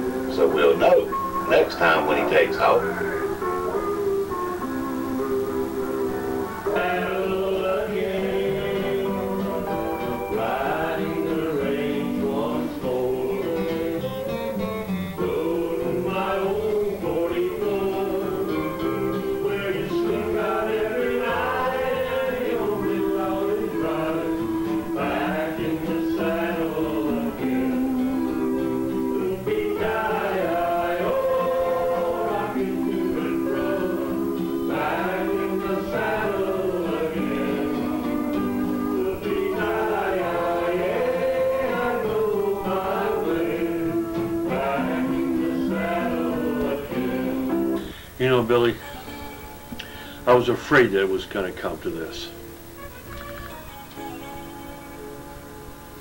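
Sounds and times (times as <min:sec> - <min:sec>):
person singing: 0:00.0 - 0:03.9, 0:06.7 - 0:14.2, 0:15.2 - 0:48.2
acoustic guitar: 0:00.0 - 0:56.0.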